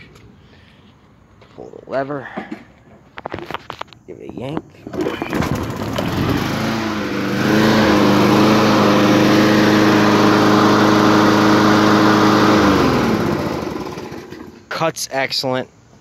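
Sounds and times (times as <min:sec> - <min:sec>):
lawn mower engine running: 0:04.8 - 0:14.7.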